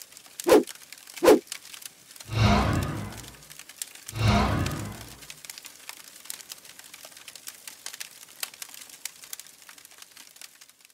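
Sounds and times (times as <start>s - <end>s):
embers crackling and popping: 0.0s - 10.9s
deep boom hit: 2.3s - 3.4s, 4.2s - 5.2s.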